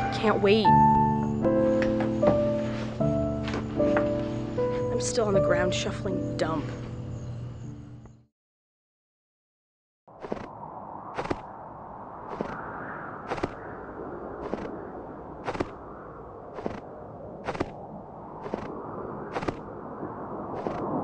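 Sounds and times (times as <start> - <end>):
steady rushing noise: 10.2 - 21.0
footsteps crunching in snow: 15.4 - 15.8, 16.6 - 16.8, 17.4 - 17.8.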